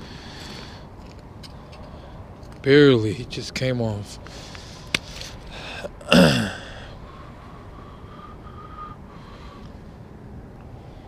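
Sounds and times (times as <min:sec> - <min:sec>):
steady low hiss: 0:00.0 - 0:11.0
man grunting: 0:06.0 - 0:06.8.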